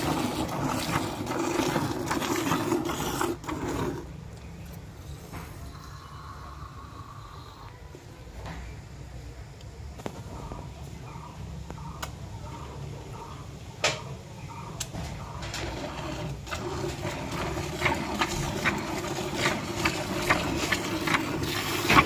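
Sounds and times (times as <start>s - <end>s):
milk squirting into bucket: 0.0s - 4.2s, 15.7s - 22.0s.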